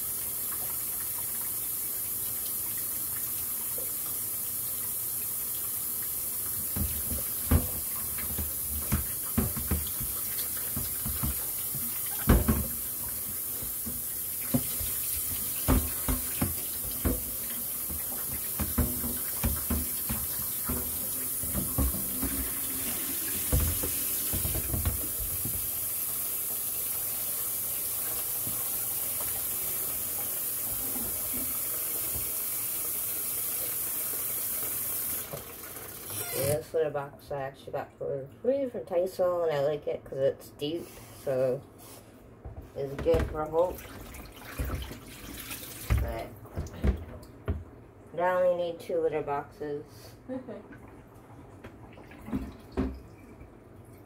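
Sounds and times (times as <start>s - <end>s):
tap running into metal sink: 6.6s - 25.7s
plastic box knocking against sink: 6.7s - 12.8s, 13.7s - 22.6s, 23.4s - 25.7s.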